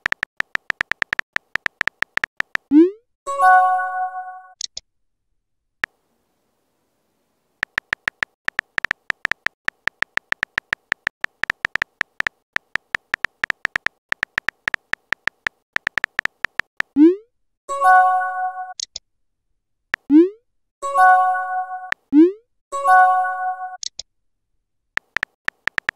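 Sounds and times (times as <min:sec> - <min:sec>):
phone keyboard typing clicks: 0:00.0 - 0:02.7, 0:07.6 - 0:17.0, 0:25.0 - 0:25.9.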